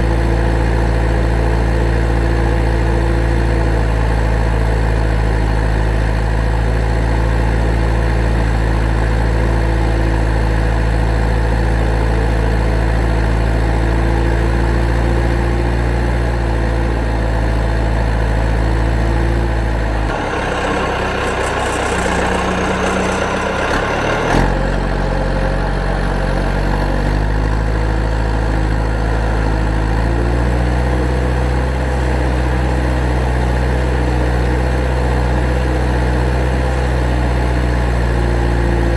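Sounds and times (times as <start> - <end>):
heavy engine idling: 0.0 - 38.9
rushing noise: 20.1 - 26.1.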